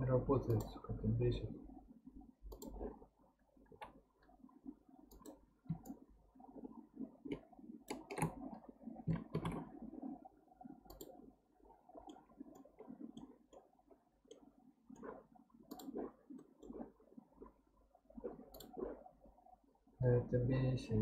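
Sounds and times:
mouse and keyboard clicks: 0:02.5 - 0:02.9, 0:07.3 - 0:08.4, 0:09.1 - 0:09.7, 0:10.9 - 0:11.2, 0:15.0 - 0:16.8, 0:18.5 - 0:18.9.

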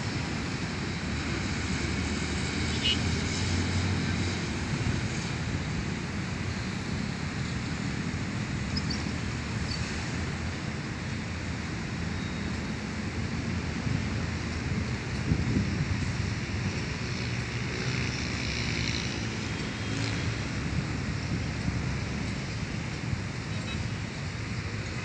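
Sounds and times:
distant road traffic: 0:00.0 - 0:25.0
wind on microphone: 0:13.8 - 0:17.0.

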